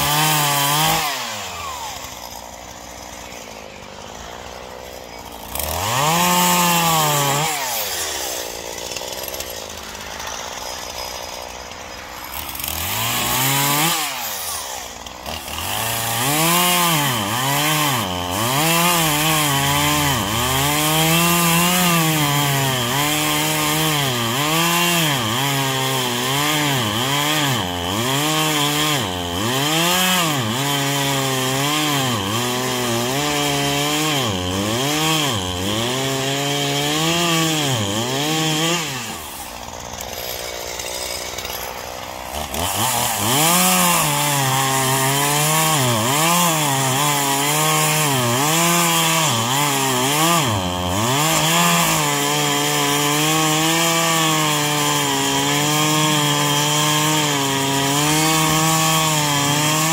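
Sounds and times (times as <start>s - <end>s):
chainsaw cutting wood: 0.0s - 59.9s
chainsaw idling: 0.0s - 59.9s.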